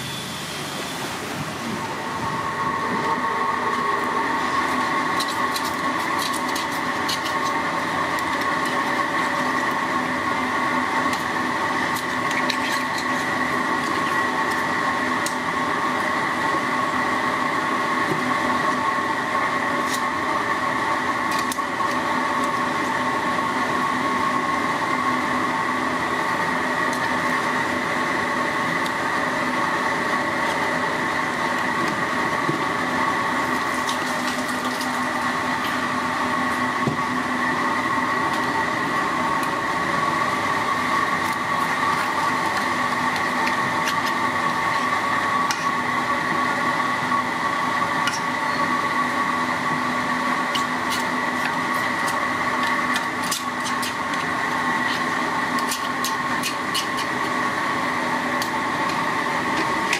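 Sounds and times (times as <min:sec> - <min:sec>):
machine drone: 0:00.0 - 0:59.9.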